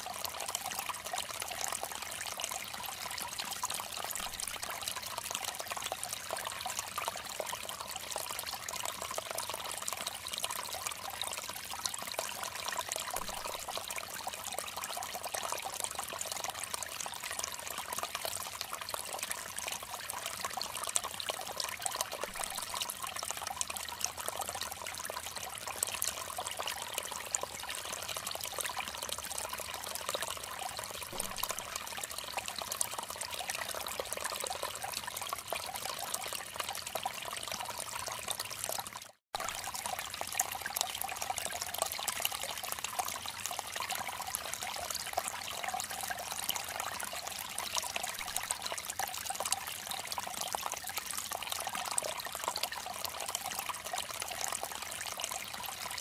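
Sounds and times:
stream splashing over stones: 3.9s - 5.5s, 12.5s - 15.1s, 21.0s - 24.6s, 27.3s - 56.0s.

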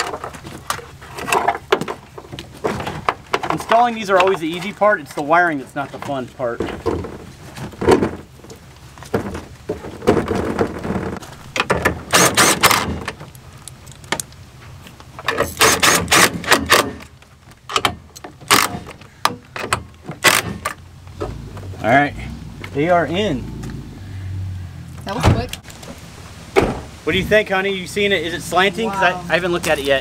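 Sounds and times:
cordless drill driving bolts: 12.0s - 13.1s, 15.3s - 17.0s, 19.7s - 20.8s.

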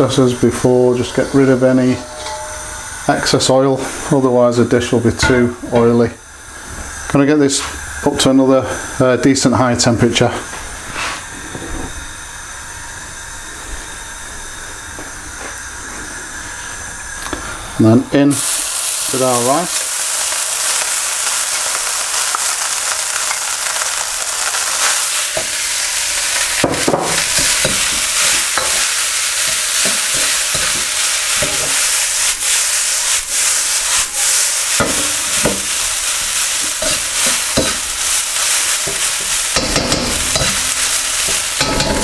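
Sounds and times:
rice sizzling in oil: 0.0s - 10.2s, 18.2s - 42.0s
metal ladle scraping wok: 1.2s - 3.1s, 24.8s - 32.6s, 36.6s - 42.0s.

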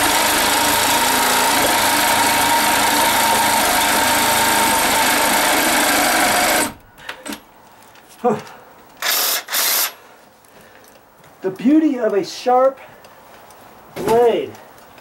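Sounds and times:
reciprocating saw cutting wood: 0.0s - 6.8s.

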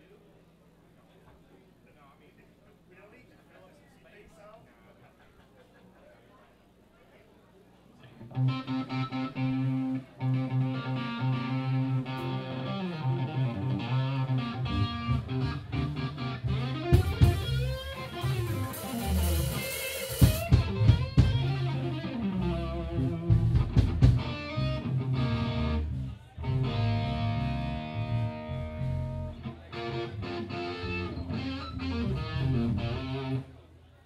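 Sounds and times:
electric guitar lead: 8.2s - 33.5s
low bass notes: 8.3s - 33.5s.

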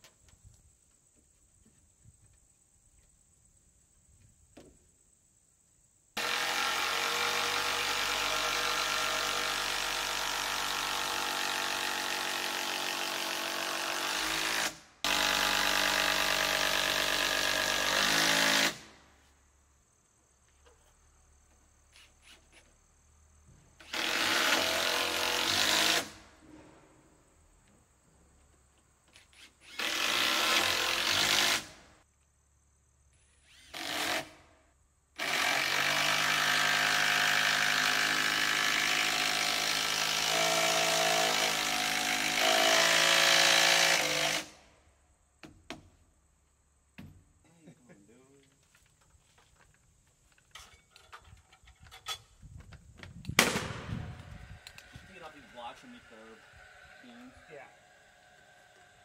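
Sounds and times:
cordless drill driving screws: 23.8s - 26.2s, 29.1s - 31.7s, 33.4s - 34.4s.

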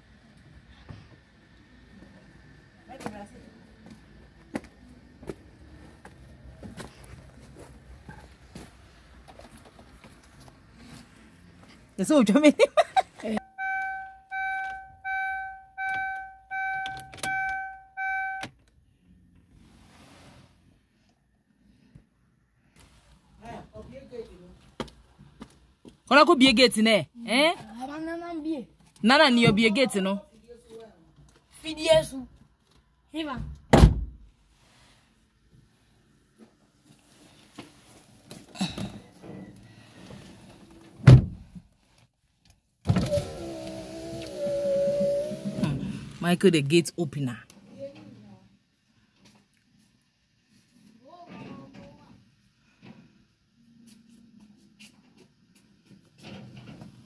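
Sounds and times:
dashboard warning chime beeping: 13.4s - 18.6s
key clicking in ignition: 15.9s - 18.7s
heavy thunk: 41.1s - 41.4s.

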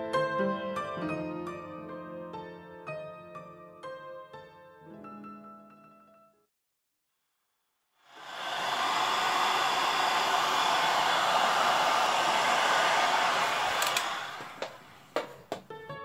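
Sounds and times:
hair dryer blowing: 8.1s - 15.6s.

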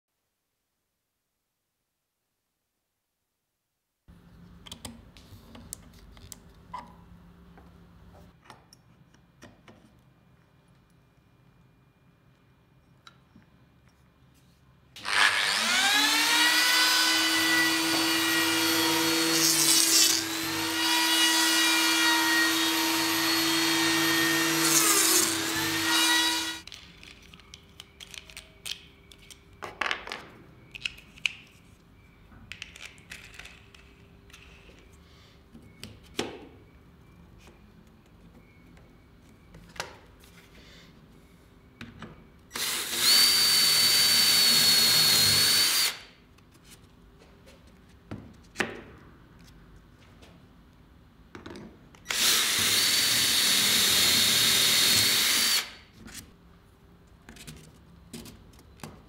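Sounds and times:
biscuit joiner cutting wood: 15.0s - 26.6s, 42.6s - 46.0s, 52.1s - 55.8s
drill boring: 15.0s - 26.6s, 42.6s - 46.1s, 52.1s - 55.8s.

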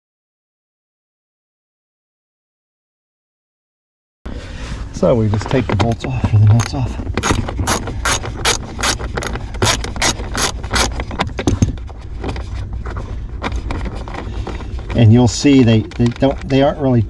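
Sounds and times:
socket ratchet clicking: 6.5s - 11.0s.

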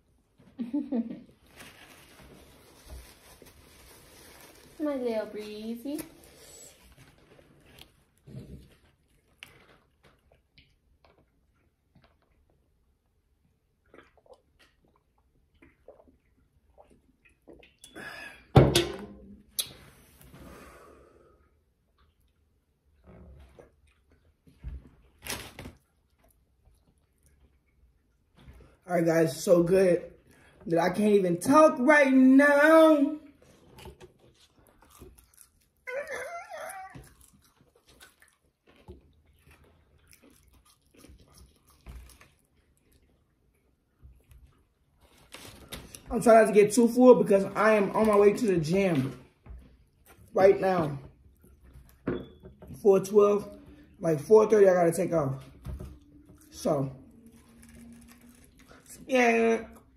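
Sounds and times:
faint chewing: 6.1s - 17.9s, 21.6s - 28.8s, 33.4s - 46.1s.

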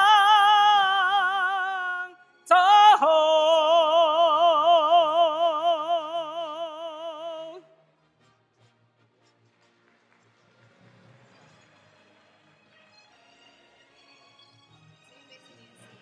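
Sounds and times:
man singing with vibrato: 0.0s - 7.8s.

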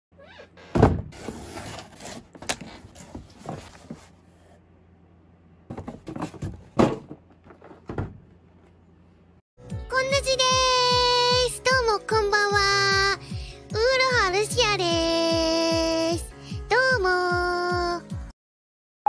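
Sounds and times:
cardboard rubbing and scraping: 1.1s - 4.4s
knocks and thumps on cardboard: 5.7s - 8.3s.

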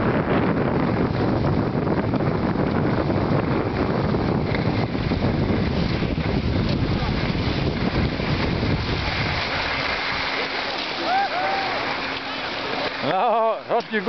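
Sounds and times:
wind rumble on microphone: 0.0s - 12.2s.

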